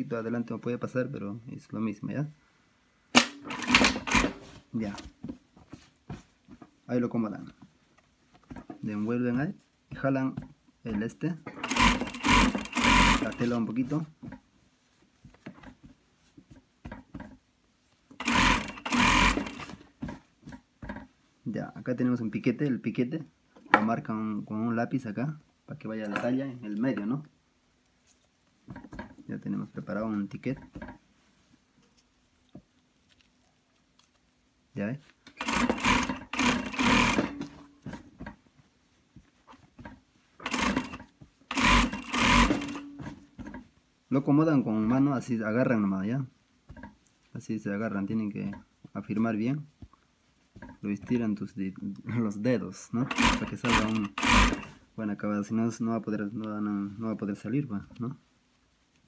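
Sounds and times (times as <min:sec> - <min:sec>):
sewing machine running: 0:03.2 - 0:04.4, 0:11.6 - 0:13.5, 0:18.2 - 0:19.8, 0:35.4 - 0:37.5, 0:40.4 - 0:43.0, 0:53.1 - 0:54.8.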